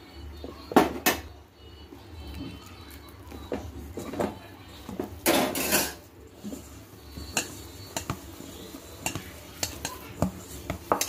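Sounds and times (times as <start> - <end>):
dough knocking in metal bowl: 9.0 - 11.0.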